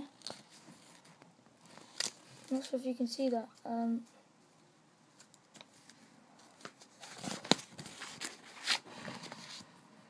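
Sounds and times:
paper rustling: 5.2s - 9.7s.

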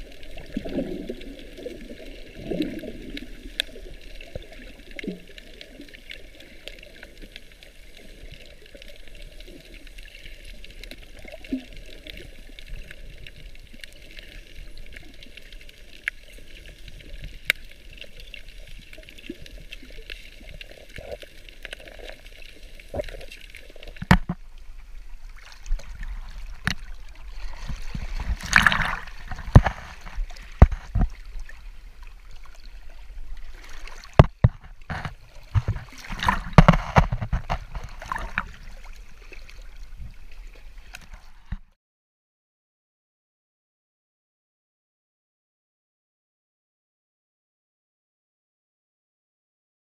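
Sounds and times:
water splashing against rocks: 0.0s - 41.8s
underwater clicks: 8.4s - 24.6s, 25.4s - 31.6s, 33.4s - 38.7s.

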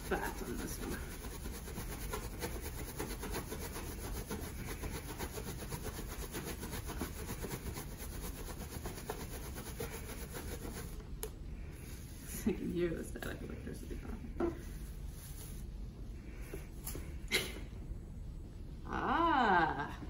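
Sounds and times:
towel rubbing a balloon: 0.0s - 11.0s.

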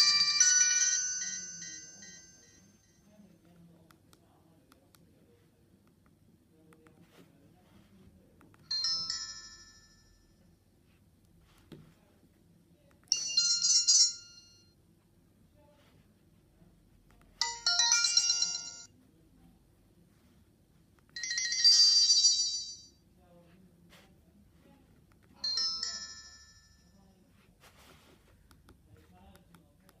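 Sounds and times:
phone message alert chimes: 17.4s - 18.9s.

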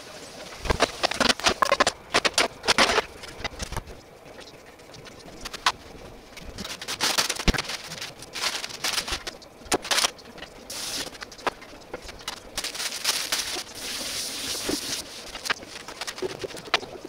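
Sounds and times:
hissing noise: 10.6s - 17.0s.

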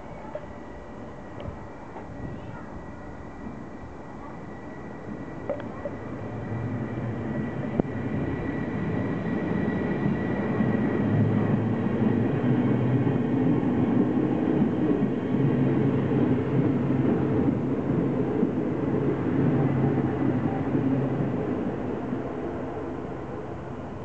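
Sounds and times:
train wheels rumbling on rails: 5.0s - 24.0s.

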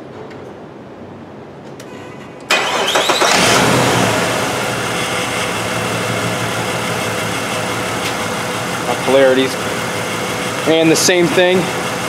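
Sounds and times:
car engine cranking and starting: 2.5s - 12.0s
misfiring engine idling: 2.6s - 12.0s.

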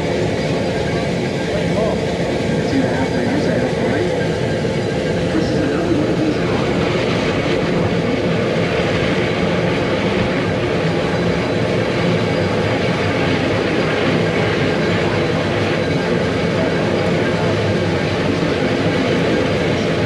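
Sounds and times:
rack railway train running: 0.0s - 20.0s.

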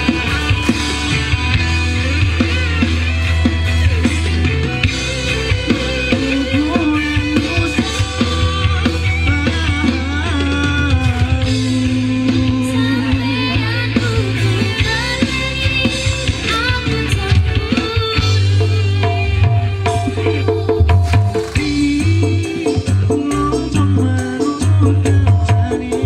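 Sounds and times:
music with drum beat and bass: 0.0s - 26.0s.

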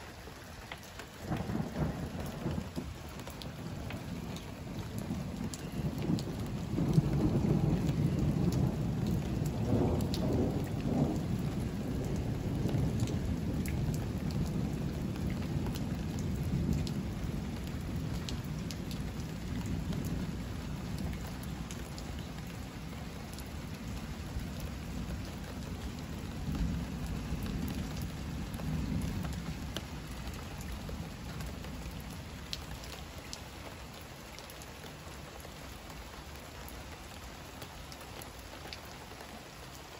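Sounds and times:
heavy rain: 0.0s - 39.9s
thunder rumble: 1.2s - 32.4s.

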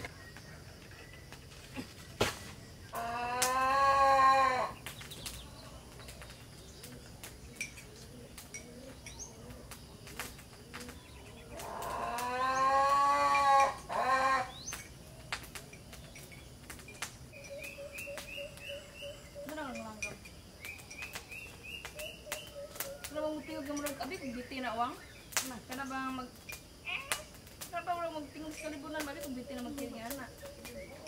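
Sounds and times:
faint bird chirps: 0.0s - 3.0s, 4.6s - 12.8s, 13.8s - 27.4s
cow mooing: 11.8s - 14.5s.

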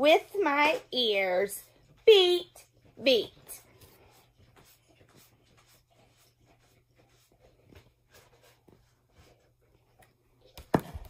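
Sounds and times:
picture book rustling: 3.6s - 11.0s.

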